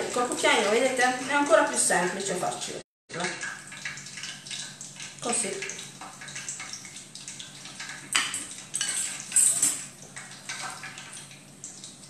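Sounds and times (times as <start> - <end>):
metal spoon scraping glass bowl: 8.8 - 9.8.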